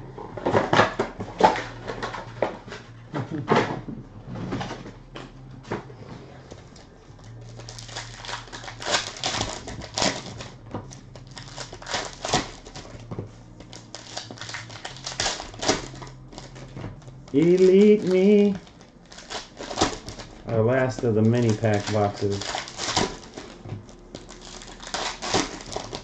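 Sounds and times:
card packaging crinkling and tearing: 6.7 - 26.0
packaging snaps and clicks: 6.8 - 13.0, 13.6 - 26.0.

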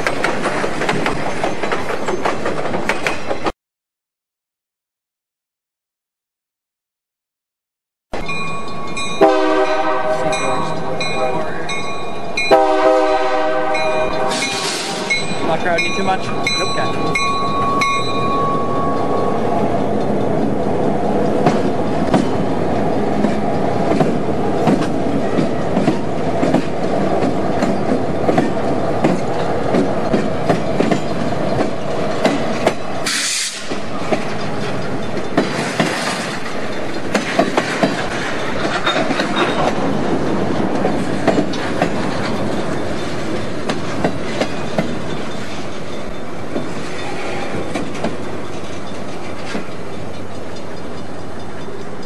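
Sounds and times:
wheels clicking over rail joints: 0.0 - 3.5, 13.7 - 52.0
diesel locomotive engines running: 9.2 - 52.0
steady high tone: 13.8 - 21.2
burst of hiss: 14.3 - 15.1, 33.0 - 33.7.

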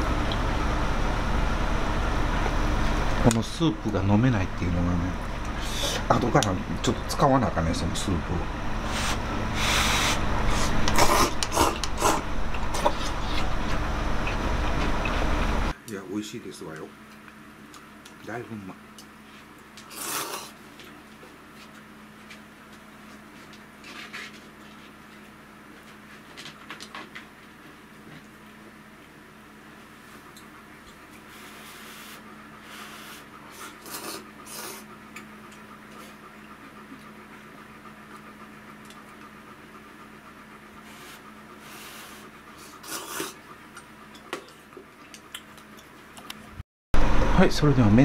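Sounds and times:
faint steady hum: 0.0 - 48.0
noodles slurped: 8.9 - 13.5, 19.8 - 20.6, 32.8 - 34.9, 41.0 - 43.4.

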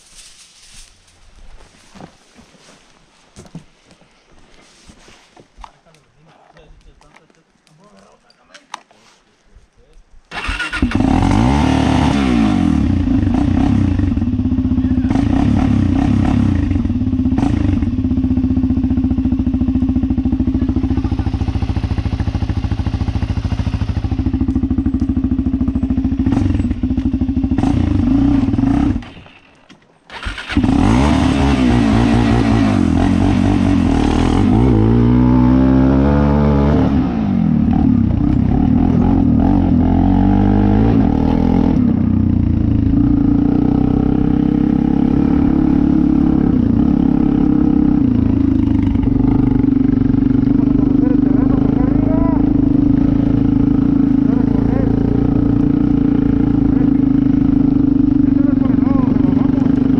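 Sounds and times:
quad bike engine revving: 10.3 - 29.4, 30.1 - 59.9.

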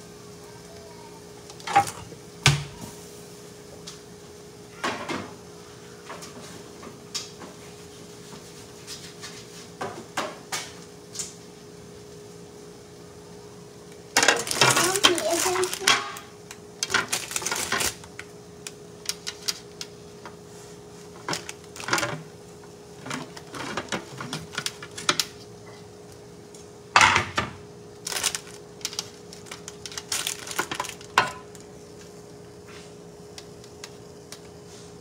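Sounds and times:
faint steady hum: 0.0 - 35.0
dishes and utensils clattering: 1.7 - 2.1.

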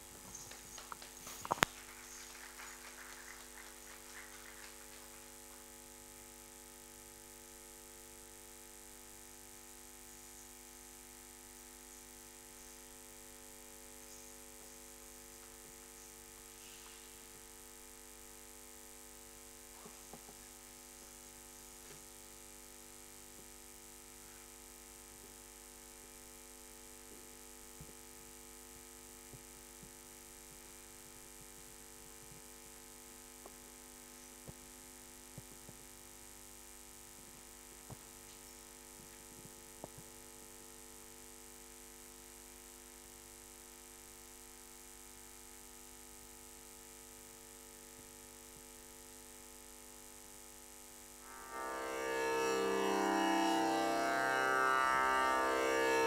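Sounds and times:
electrical hum: 0.0 - 18.8, 51.2 - 56.0.

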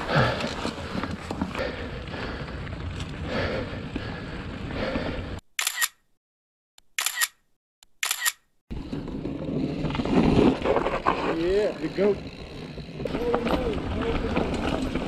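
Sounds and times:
camera shutter clicks: 5.6 - 6.1, 6.8 - 8.5.

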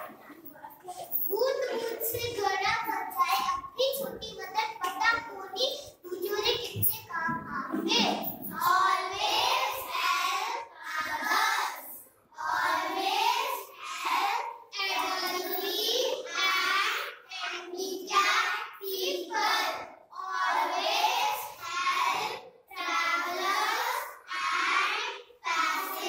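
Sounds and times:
children singing in unison: 8.5 - 15.8, 16.4 - 26.0.

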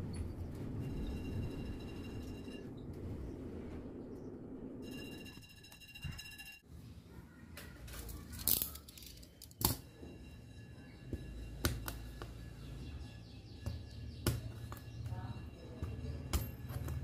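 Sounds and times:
small tools clicking and tapping: 7.6 - 9.9.

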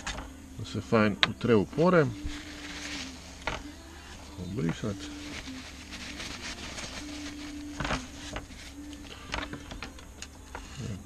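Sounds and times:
paper towel rustling: 1.8 - 9.8.

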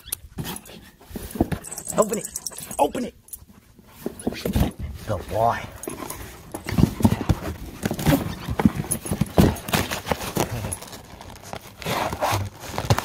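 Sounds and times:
knocks and scrapes on carton: 3.9 - 13.0
dog tearing cardboard box: 6.1 - 13.0.

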